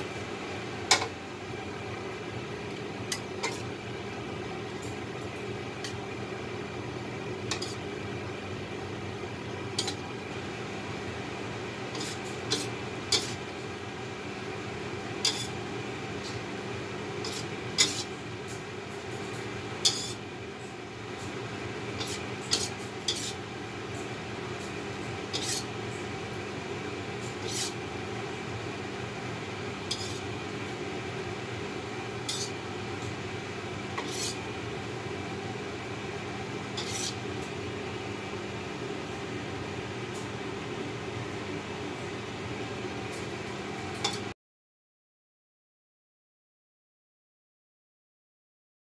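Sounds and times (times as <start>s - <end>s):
steady low hum: 0.0s - 44.3s
utensil scraping metal wok: 3.1s - 3.7s, 7.5s - 7.9s, 9.8s - 10.0s, 11.9s - 13.4s, 15.2s - 15.6s, 17.2s - 18.2s, 19.8s - 20.2s, 22.0s - 23.5s, 25.3s - 25.7s, 27.3s - 27.8s, 29.8s - 30.4s, 32.2s - 32.6s, 33.9s - 34.5s, 36.7s - 37.2s.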